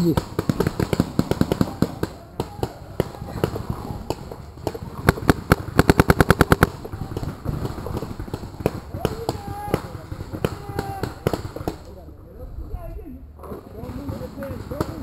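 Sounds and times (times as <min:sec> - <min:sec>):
paintball marker firing: 0:00.0 - 0:12.0.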